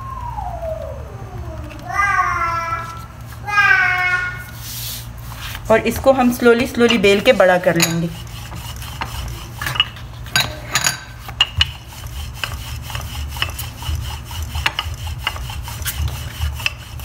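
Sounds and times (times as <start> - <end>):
rolling pin rubbing on dough: 4.4 - 10.1, 11.1 - 17.0.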